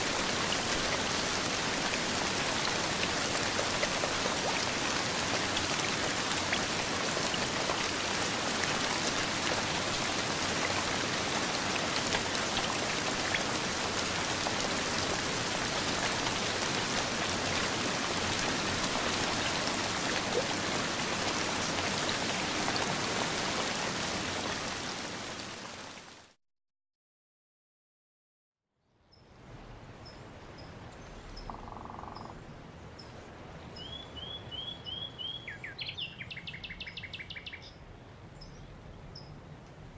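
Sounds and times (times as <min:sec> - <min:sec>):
rain on wooden boardwalk: 0:00.0 - 0:26.4
steady rain: 0:00.0 - 0:26.4.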